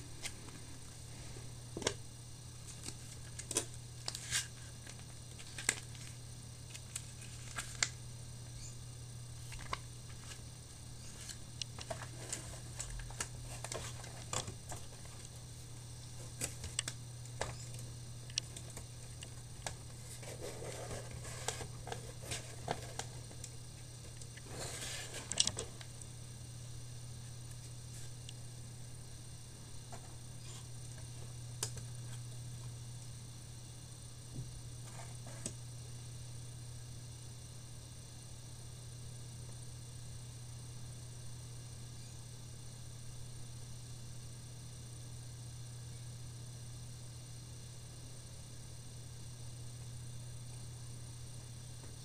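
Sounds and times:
card and paper rustling: 2.7s - 8.0s, 11.0s - 15.4s, 19.6s - 23.5s.

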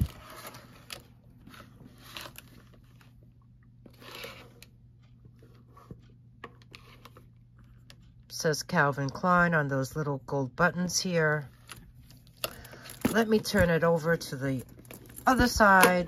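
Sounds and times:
low steady hum: 0.0s - 16.0s
leather bag rustling and crinkling: 12.7s - 15.8s.

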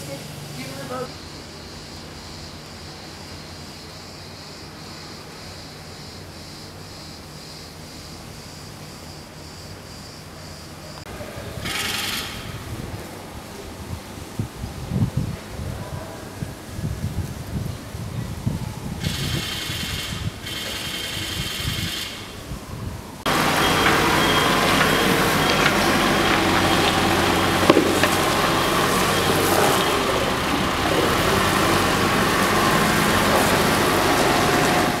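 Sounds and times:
diesel engine running: 0.0s - 6.4s, 22.8s - 35.0s
wind on microphone: 11.1s - 23.3s.

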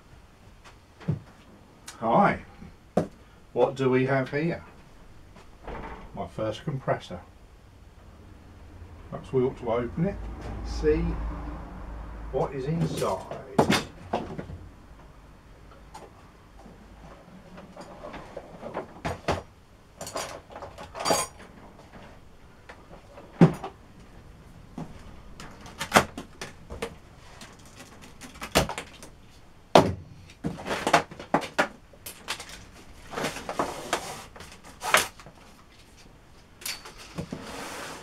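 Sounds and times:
rustling scrapes: 32.4s - 36.2s, 37.0s - 38.0s.

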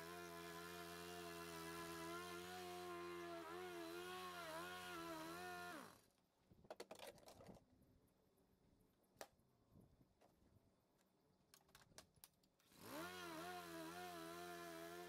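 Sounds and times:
power tool motor winding down: 0.0s - 6.0s, 12.7s - 15.0s.

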